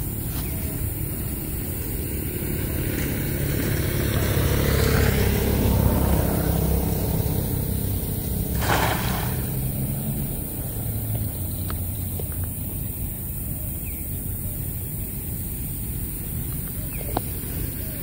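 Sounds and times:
vehicle engine humming: 0.0 - 14.6
cast net splashing on water: 8.3 - 10.2.

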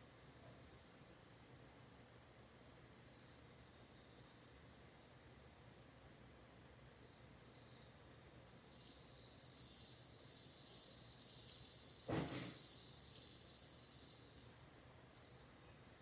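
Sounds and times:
cricket trilling: 7.0 - 14.7.

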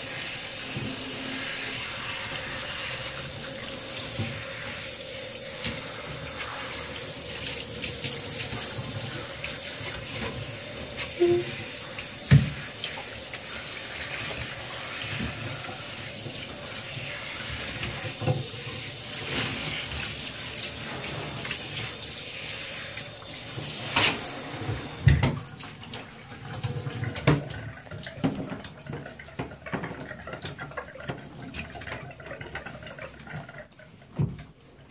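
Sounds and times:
shower head spraying water: 0.0 - 25.2.

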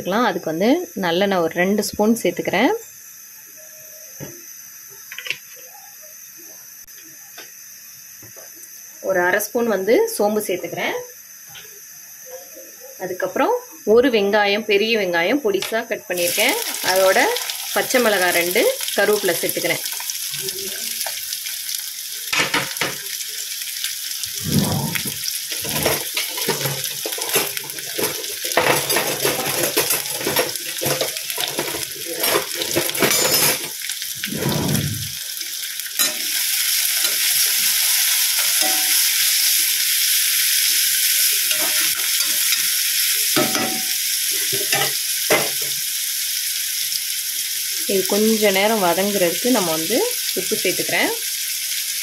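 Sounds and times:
vegetables sizzling in hot oil: 0.0 - 52.0
utensil stirring and scraping pan: 41.5 - 42.6.

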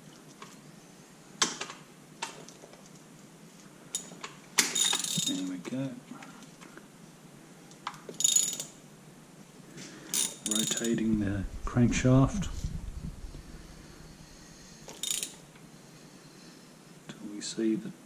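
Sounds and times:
metal tools clinking: 3.9 - 5.6, 8.2 - 8.8, 10.1 - 11.0, 14.9 - 15.4.

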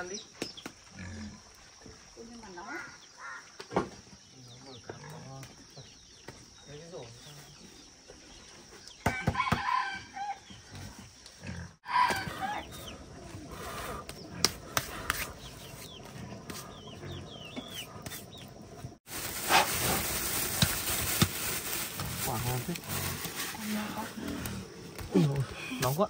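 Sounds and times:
rooster crowing: 9.0 - 10.5, 11.8 - 12.7.

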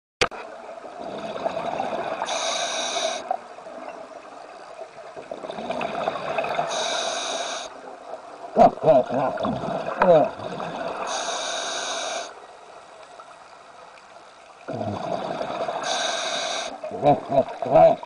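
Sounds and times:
bubbling gurgles: 0.9 - 2.5, 5.2 - 6.9, 8.5 - 11.3, 14.6 - 18.0
diver breathing through regulator: 1.1 - 3.3, 5.8 - 7.7, 10.4 - 12.4, 14.7 - 16.8.

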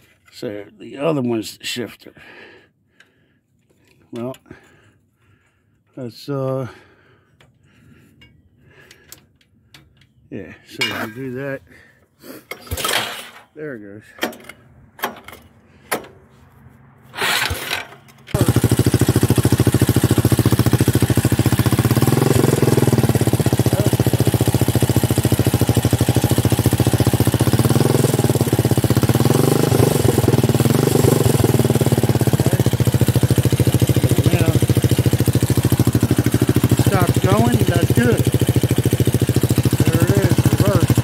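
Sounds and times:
small engine starting and running: 17.1 - 41.0.

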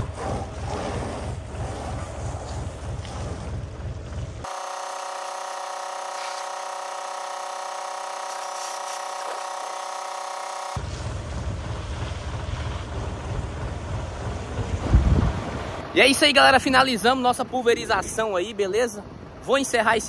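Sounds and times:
hose water spraying on metal: 0.0 - 15.8
steady multi-tone hum: 0.0 - 20.0.

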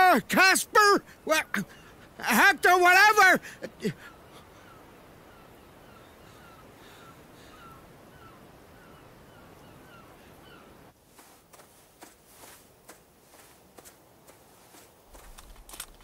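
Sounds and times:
wind-like hiss: 3.4 - 16.0
sharp clicks: 15.2 - 16.0.

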